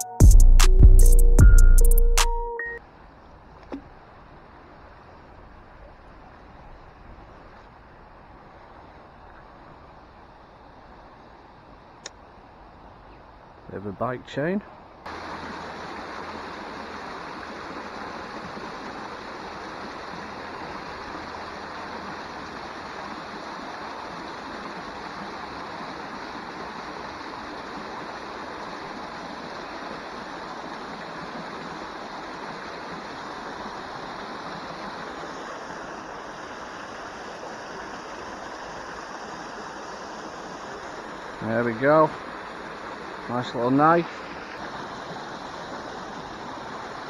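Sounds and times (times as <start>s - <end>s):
water rushing and splashing down: 15.0s - 47.0s.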